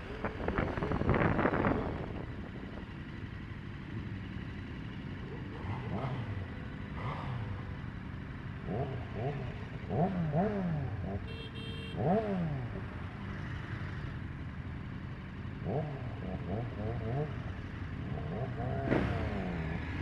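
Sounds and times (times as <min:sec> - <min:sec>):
motorcycle engines idling: 0:00.0 - 0:20.0
motorcycle throttle blips: 0:08.7 - 0:12.8.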